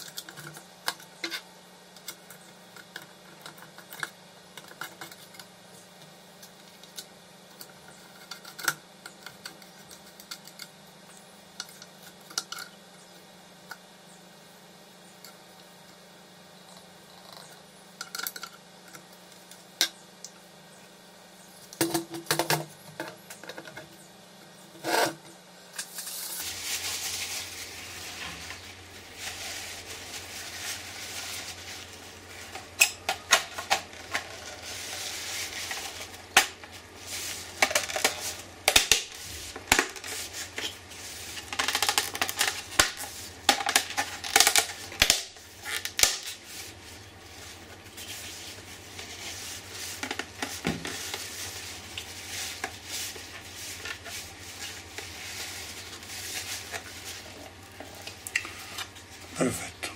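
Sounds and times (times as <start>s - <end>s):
tissue rubbing on plastic lens: 26.0s - 32.8s, 46.4s - 57.7s.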